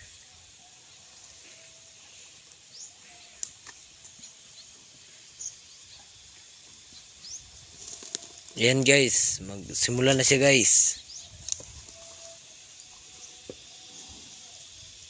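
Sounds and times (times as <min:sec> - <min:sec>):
steady high hiss: 0:00.0 - 0:15.0
faint clicks and rustles: 0:06.1 - 0:08.6.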